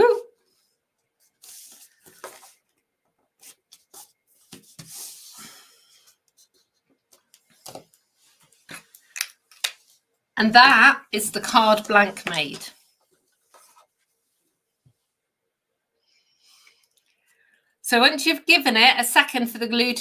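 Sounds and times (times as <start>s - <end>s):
paper rustling: 1.2s - 5.4s.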